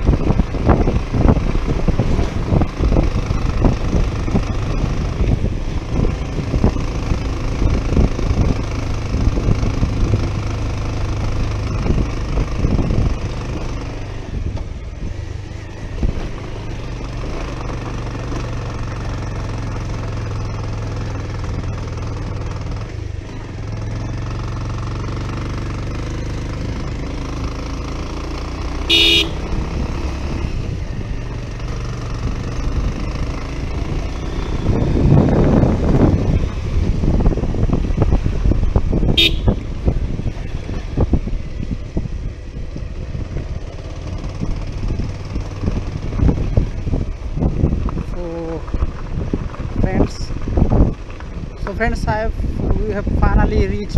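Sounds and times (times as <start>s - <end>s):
wind buffeting microphone: 0.0s - 17.9s, 29.4s - 53.9s
motorcycle engine running: 0.0s - 53.9s
short horn beep: 28.9s - 29.4s, 39.2s - 39.6s.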